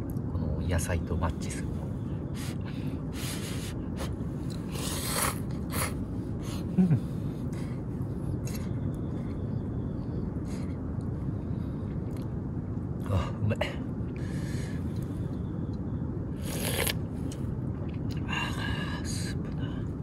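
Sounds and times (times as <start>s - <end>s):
low background rumble: 0.0s - 20.0s
person slurping noodles: 3.2s - 6.0s, 16.4s - 17.0s
person eating: 3.3s - 6.0s, 16.4s - 18.3s.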